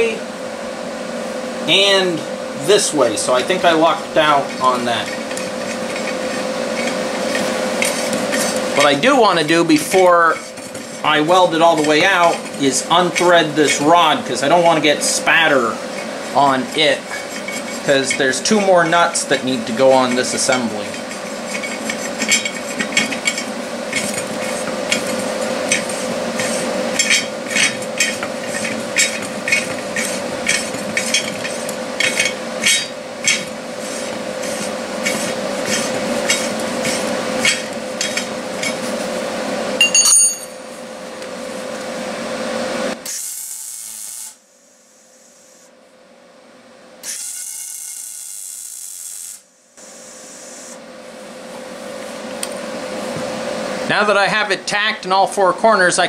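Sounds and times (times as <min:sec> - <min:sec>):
welder crackling: 0:01.7 - 0:39.0, 0:47.0 - 0:49.4
metal threaded rod scraping: 0:04.2 - 0:14.8, 0:15.4 - 0:38.9.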